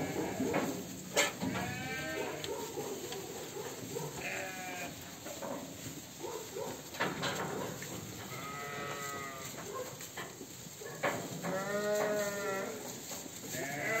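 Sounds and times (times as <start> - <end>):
sheep bleating: 1.4 - 2.4, 4.2 - 5.0, 8.2 - 9.6, 11.4 - 12.8, 13.5 - 14.0.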